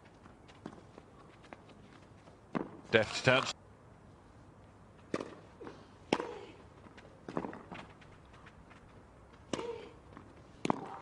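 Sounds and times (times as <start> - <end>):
rackets striking tennis ball: 5.0 - 8.1, 9.4 - 11.0.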